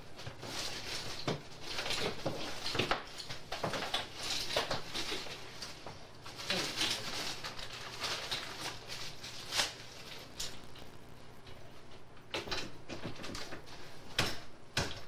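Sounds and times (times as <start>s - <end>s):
tape hiss: 0.0s - 15.0s
low hum: 9.8s - 13.0s.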